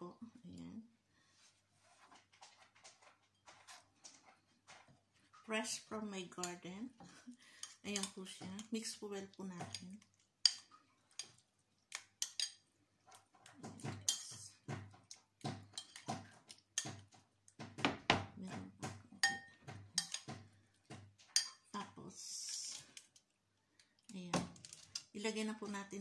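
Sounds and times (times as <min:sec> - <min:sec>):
spoon scraping ceramic bowl: 0:02.0 - 0:05.3, 0:12.0 - 0:17.2, 0:18.6 - 0:21.7
spoon clinking against bowl: 0:19.2 - 0:20.3.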